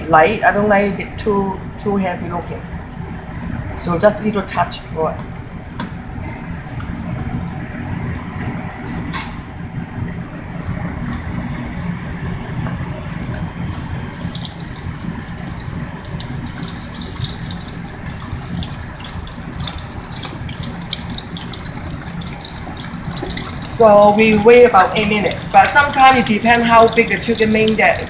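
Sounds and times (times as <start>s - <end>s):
low hum: 9.9s - 28.0s
chicken wings deep-frying in oil: 12.8s - 28.0s.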